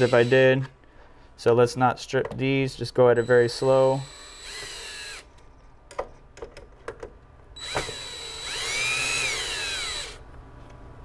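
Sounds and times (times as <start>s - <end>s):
cordless drill motor whining: 0.0s - 0.4s, 3.2s - 5.3s, 7.6s - 10.2s.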